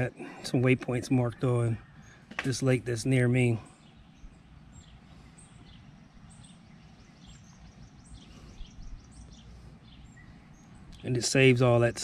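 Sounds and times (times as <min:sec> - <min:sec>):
low outdoor rumble: 0:00.0 - 0:12.0
small birds chirping: 0:00.0 - 0:12.0.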